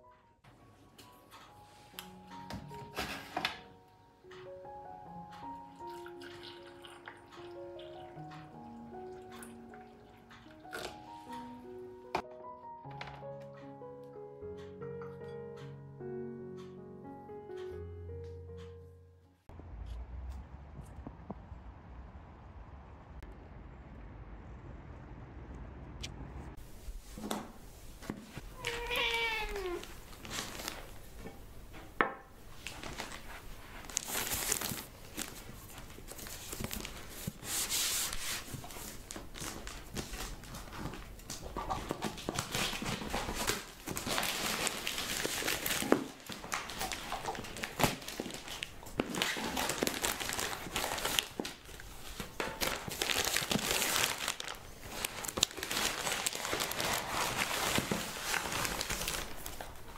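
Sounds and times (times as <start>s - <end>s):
packaging crinkling and rustling: 28.3s - 31.3s, 32.5s - 59.9s
cat meowing: 28.5s - 30.0s.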